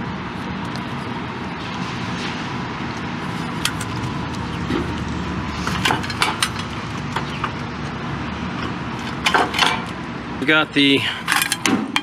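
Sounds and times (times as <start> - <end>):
wires clicking and rustling: 2.9 - 8.0.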